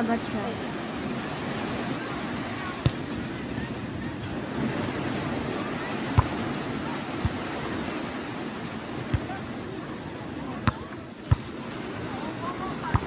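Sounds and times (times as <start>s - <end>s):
surf washing on beach: 0.0s - 13.0s
volleyball being hit: 2.8s - 3.0s, 6.1s - 6.4s, 9.1s - 9.4s, 10.6s - 11.5s.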